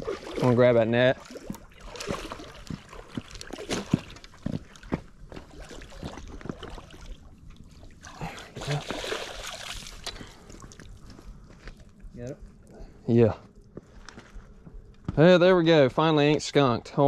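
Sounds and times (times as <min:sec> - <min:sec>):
water splashing and sloshing: 0:00.0 - 0:12.7.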